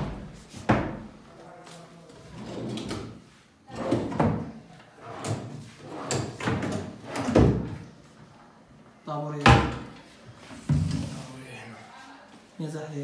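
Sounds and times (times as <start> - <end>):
drawers and doors knocking shut: 6.1 - 7.8.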